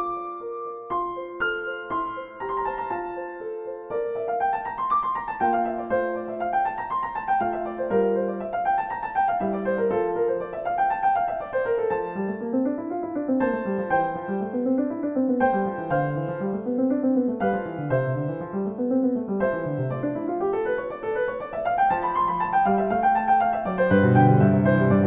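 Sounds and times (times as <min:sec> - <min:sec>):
gentle solo piano music: 0:00.0 - 0:25.0.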